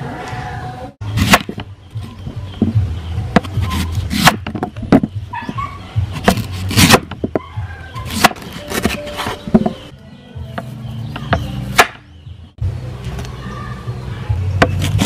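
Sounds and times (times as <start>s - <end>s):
cleaver chopping on wooden board: 1.2s - 1.7s, 2.6s - 5.1s, 6.1s - 9.8s, 10.5s - 12.1s.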